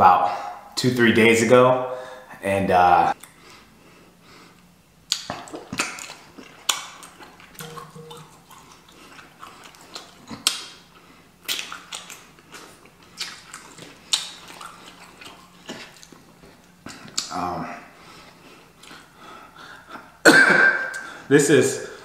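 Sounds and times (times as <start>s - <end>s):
wet chewing and lip-smacking: 5.0s - 17.4s, 18.2s - 19.1s.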